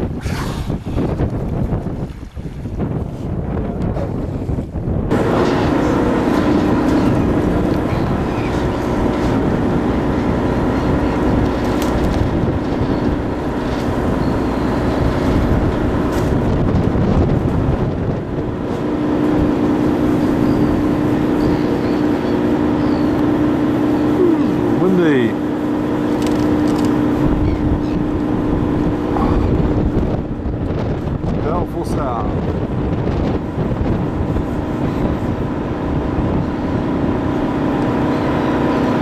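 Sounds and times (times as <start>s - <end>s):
boat engine droning: 0.0s - 39.0s.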